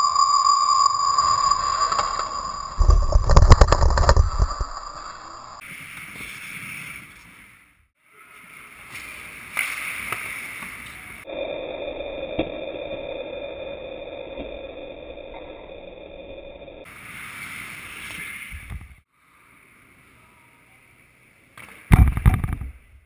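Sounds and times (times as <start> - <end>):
faint rink noise: 1.2 - 11.3, 16.9 - 23.0.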